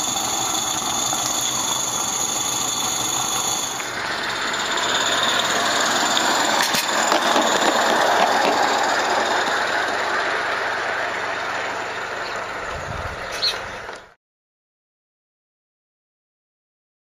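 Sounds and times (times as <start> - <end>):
steam locomotive hissing and running: 0.0 - 14.1
short high squeak: 13.2 - 13.7.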